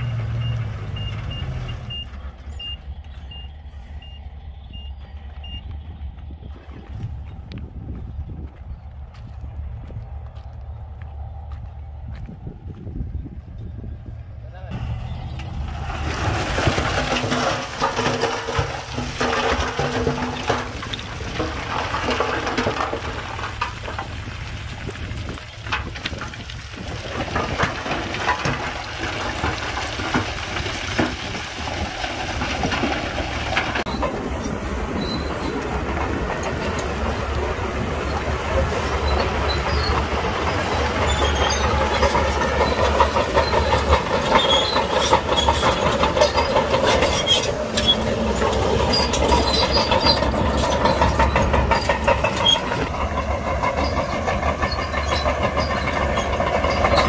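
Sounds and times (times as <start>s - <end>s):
diesel engine droning: 0.0s - 57.0s
steel tracks clanking: 14.6s - 57.0s.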